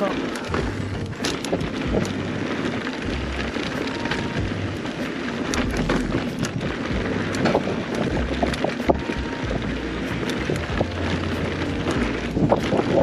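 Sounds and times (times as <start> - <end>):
bike rattling clicks and knocks: 0.0 - 13.0
bike tyres rolling on dirt: 0.0 - 13.0
wind buffeting microphone: 0.0 - 13.0.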